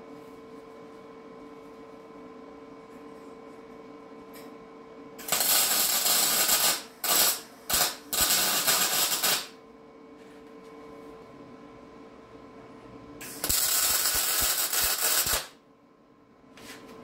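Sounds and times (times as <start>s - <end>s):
welder arc crackling: 5.2s - 9.5s, 13.2s - 15.6s.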